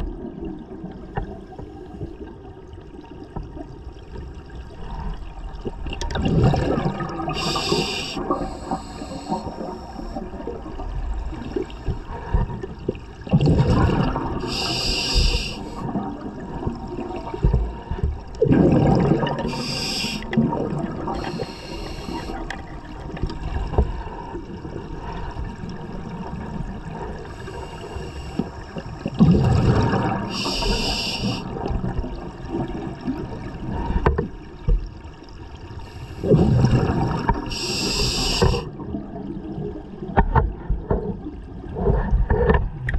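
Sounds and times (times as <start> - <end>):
exhaled bubbles underwater: 0.0 - 42.9
regulator hissing inhalations: 7.4 - 10.2, 14.4 - 15.9, 19.4 - 20.3, 21.1 - 22.4, 27.3 - 28.6, 30.3 - 31.5, 37.5 - 38.7.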